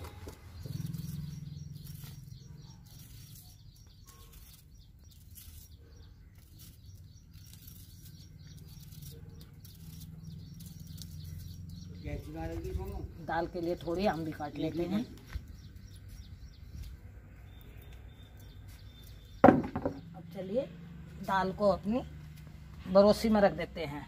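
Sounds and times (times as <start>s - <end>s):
birds chirping: 0.0s - 24.0s.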